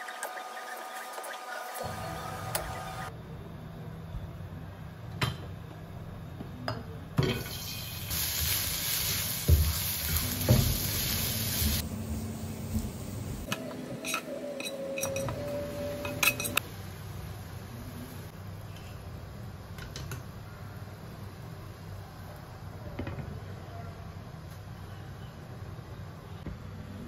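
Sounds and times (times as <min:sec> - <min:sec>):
garlic sizzling in hot oil: 0:07.4 - 0:13.4.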